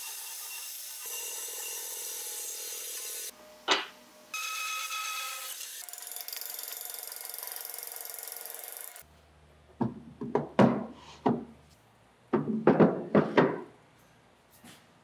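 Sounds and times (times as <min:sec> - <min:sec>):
hollow wooden knocks: 0:09.8 - 0:11.5, 0:12.3 - 0:13.7.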